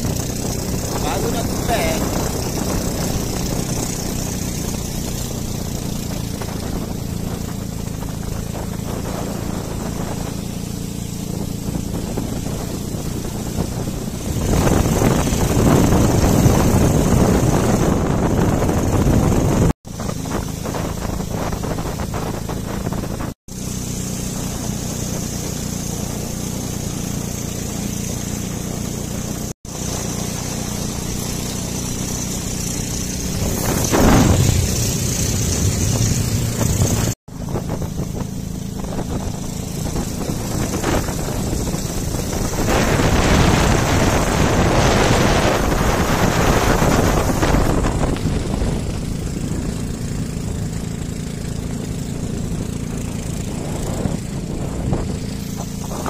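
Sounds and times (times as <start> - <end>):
motorboat engine running: 0.0 - 56.0.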